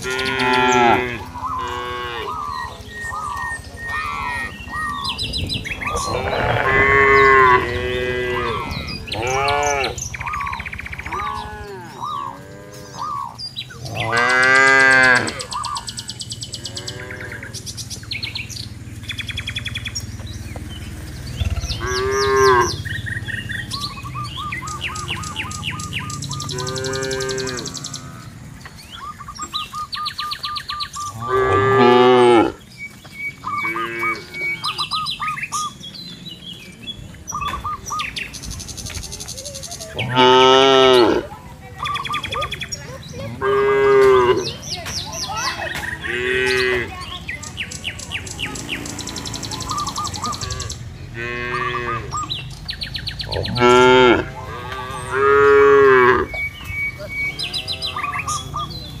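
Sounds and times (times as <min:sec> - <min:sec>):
cattle mooing: 0:00.0 - 0:02.7, 0:05.9 - 0:10.1, 0:11.1 - 0:17.6, 0:21.4 - 0:22.8, 0:24.9 - 0:28.4, 0:31.1 - 0:32.6, 0:33.5 - 0:34.9, 0:40.0 - 0:41.3, 0:43.3 - 0:44.6, 0:46.0 - 0:47.1, 0:49.0 - 0:52.3, 0:53.2 - 0:56.4.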